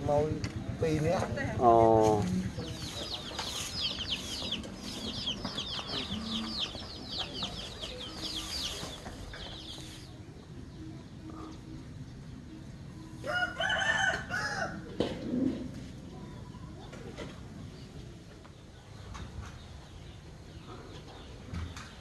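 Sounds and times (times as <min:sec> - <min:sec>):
rooster crowing: 0:13.2 - 0:14.9.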